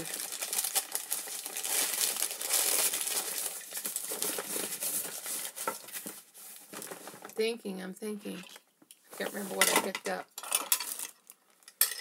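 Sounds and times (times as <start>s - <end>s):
bag crinkling and rustling: 0.0s - 7.4s.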